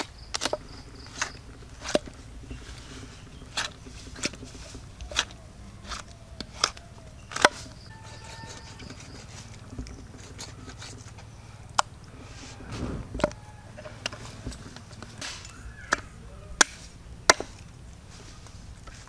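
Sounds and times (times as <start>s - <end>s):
knife chopping: 16.6s - 17.6s.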